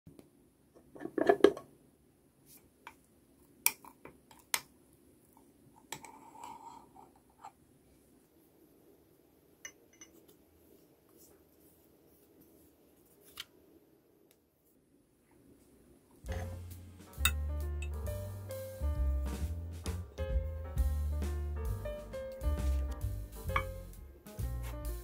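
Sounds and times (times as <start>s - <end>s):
spoon scraping peanut butter: 5.9s - 7.6s
metal spoon clinking on glass: 9.7s - 10.2s.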